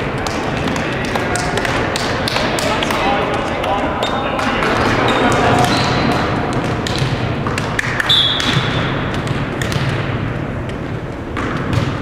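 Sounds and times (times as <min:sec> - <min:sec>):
balls bouncing on hardwood floor: 0:00.0 - 0:12.0
sneaker squeak: 0:05.0 - 0:06.1, 0:08.0 - 0:08.9.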